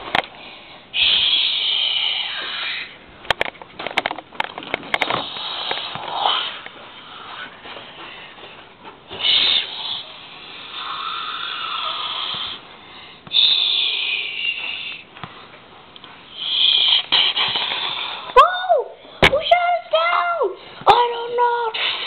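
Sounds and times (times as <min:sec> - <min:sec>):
child making hissing mouth noises: 0:01.0 - 0:03.0, 0:05.2 - 0:06.6, 0:09.1 - 0:12.6, 0:13.3 - 0:15.0, 0:16.4 - 0:18.8, 0:21.6 - 0:22.0.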